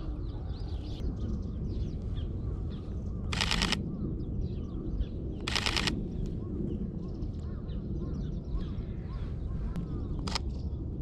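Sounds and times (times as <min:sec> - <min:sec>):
small birds chirping: 0:00.0 - 0:05.9
camera shutter rapid clicks: 0:03.3 - 0:03.8, 0:05.4 - 0:06.0, 0:10.2 - 0:10.5.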